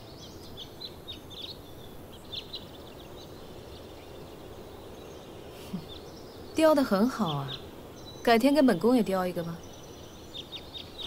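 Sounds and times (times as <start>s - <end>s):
outdoor background hiss: 0.0s - 11.0s
small birds chirping: 0.0s - 11.0s.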